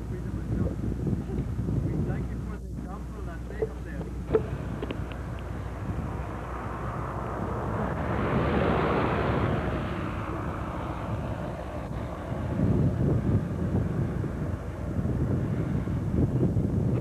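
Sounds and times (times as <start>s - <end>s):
low outdoor rumble: 0.0s - 17.0s
vehicle engine passing: 4.3s - 16.3s.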